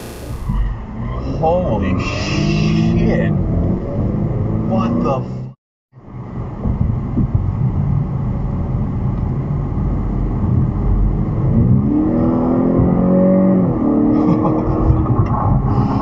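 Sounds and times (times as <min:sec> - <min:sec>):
road noise inside a car: 0:00.8 - 0:16.0.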